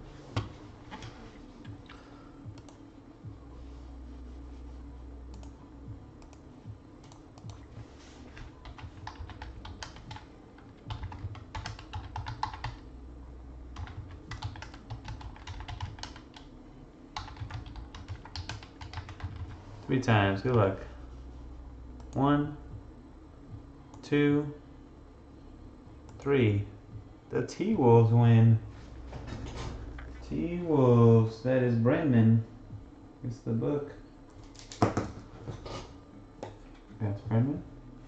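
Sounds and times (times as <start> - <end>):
computer keyboard typing: 8.6 - 12.8, 13.8 - 16.5, 17.2 - 19.6.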